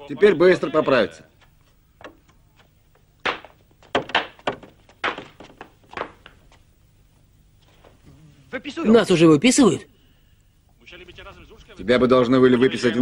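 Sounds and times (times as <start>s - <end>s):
crutches knocking on floor: 3.2s - 6.4s.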